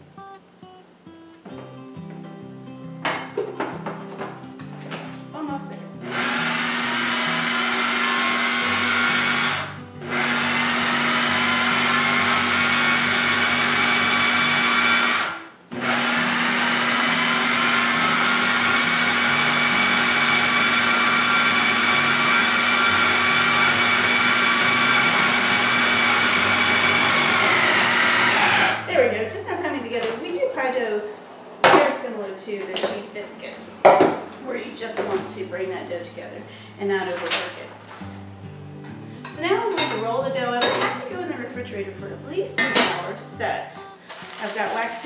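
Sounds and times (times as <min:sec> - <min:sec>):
food processor motor whining: 0:06.0 - 0:28.9.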